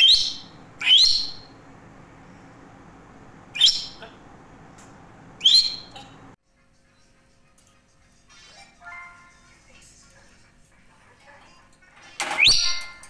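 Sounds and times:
parrot whistling rising calls: 0.0s - 1.5s, 3.5s - 4.0s, 5.4s - 6.0s.

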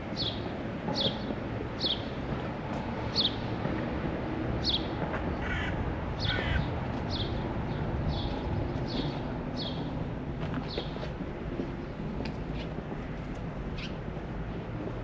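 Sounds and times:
birds chirping: 4.6s - 9.9s
harsh bird calls: 5.3s - 7.4s.

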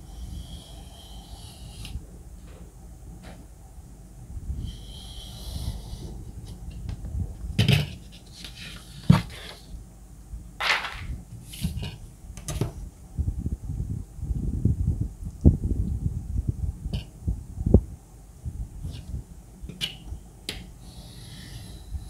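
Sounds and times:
ruler and paper knocks and rustles: 10.6s - 12.8s.

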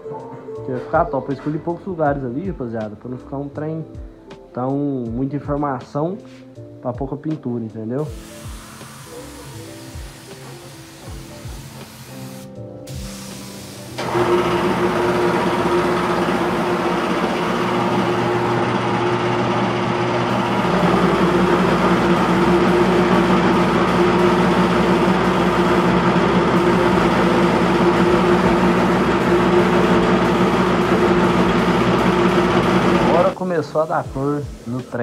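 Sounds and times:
air compressor humming: 8.1s - 33.4s.

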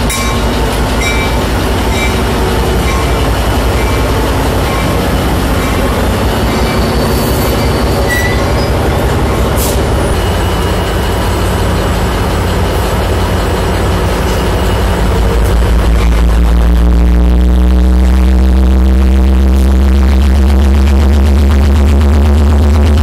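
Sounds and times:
diesel locomotive engine rumbling: 0.0s - 23.0s
wheel or brake squeal: 0.1s - 11.6s.

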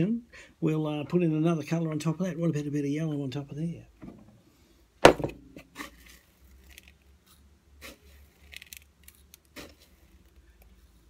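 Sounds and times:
faint rustles of wax grains: 5.8s - 11.0s.

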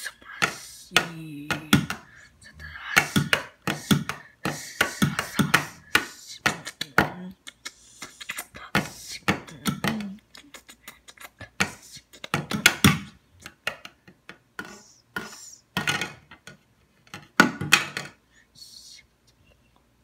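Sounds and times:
person making mouth noises: 0.0s - 13.6s.

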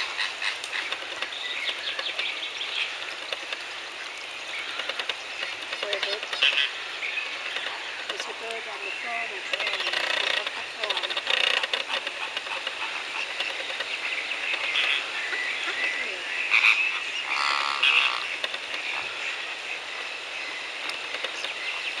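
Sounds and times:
chorus of waterfowl calls: 0.0s - 22.0s
croaking bird calls: 0.0s - 22.0s
rapid rattling bird call: 0.0s - 22.0s.

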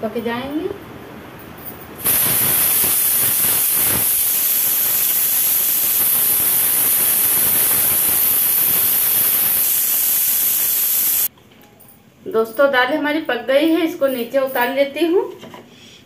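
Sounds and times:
pressure cooker whistling: 2.0s - 11.3s.

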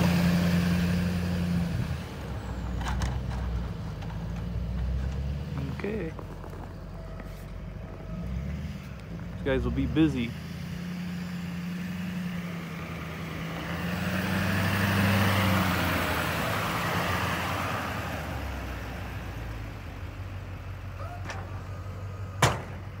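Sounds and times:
truck passing by rush: 0.0s - 6.1s, 7.3s - 23.0s
truck engine humming: 0.0s - 23.0s.

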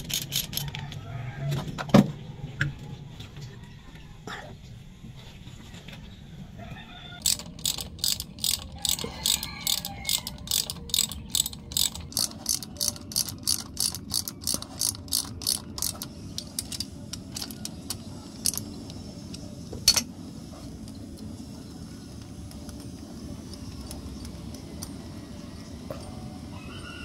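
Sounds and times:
ratchet wrench clicking: 0.0s - 0.7s, 7.2s - 20.1s, 22.5s - 25.0s.

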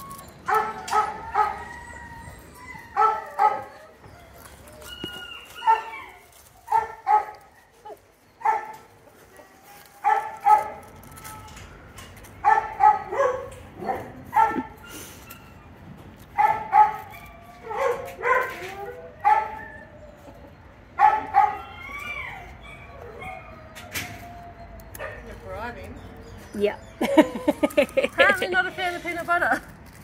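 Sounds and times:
dog yapping: 0.0s - 8.8s, 16.4s - 20.0s, 21.0s - 25.4s.

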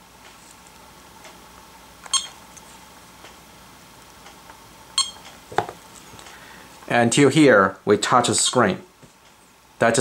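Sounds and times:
short electronic beep: 2.1s - 2.4s, 5.0s - 5.2s.

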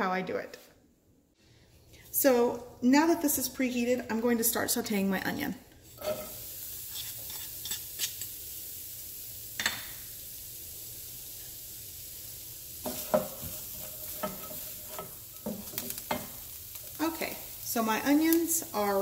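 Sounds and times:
onion sizzling in oil: 1.9s - 19.0s
wooden spoon scraping a pan: 5.8s - 8.3s, 12.8s - 17.5s.

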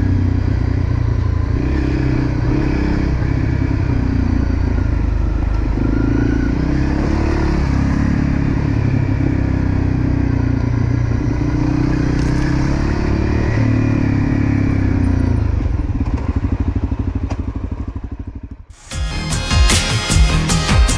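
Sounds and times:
dirt bike engine revving: 0.0s - 10.4s, 11.0s - 15.4s.

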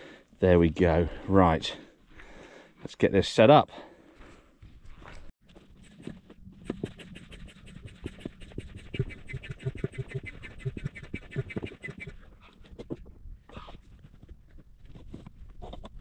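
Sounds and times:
hand pump strokes: 6.6s - 12.2s.

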